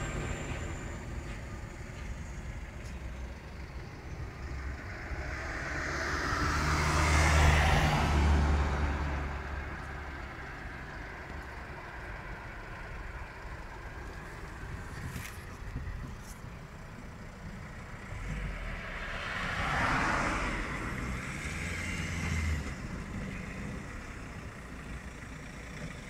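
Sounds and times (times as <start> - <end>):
background traffic: 0.0 - 26.0
vehicle driving past: 3.5 - 10.2, 17.9 - 24.0.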